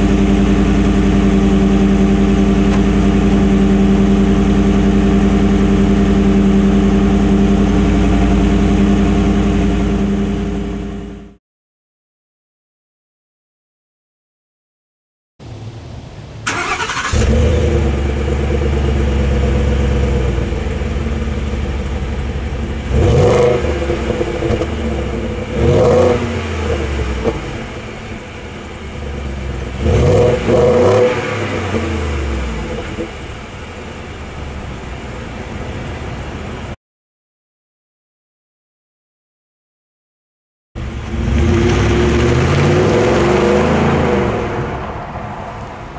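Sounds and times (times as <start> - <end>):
truck engine idling and revving: 0.0 - 11.4, 15.4 - 36.8, 40.8 - 45.9
engine cranking: 16.5 - 17.7.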